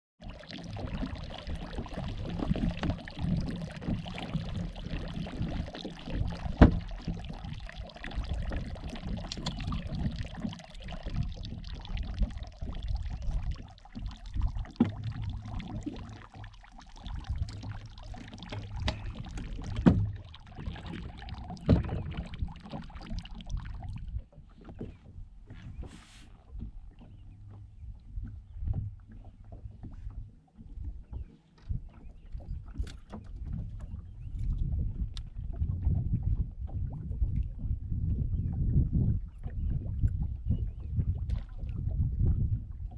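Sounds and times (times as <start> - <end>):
water lapping against boat hull: 0.2 - 42.9
sharp knocks on boat: 6.6 - 6.9, 18.5 - 20.3, 21.6 - 22.1
low wind rumble: 33.6 - 42.9.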